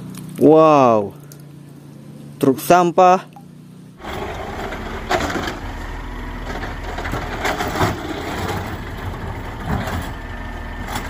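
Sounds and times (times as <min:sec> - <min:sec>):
garbage truck engine humming: 0:03.4 - 0:11.0.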